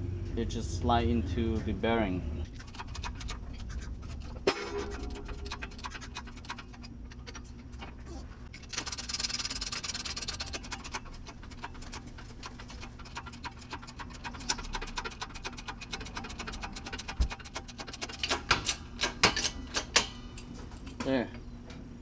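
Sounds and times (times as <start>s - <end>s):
shop press ticking and clicking: 8.7s - 20.1s.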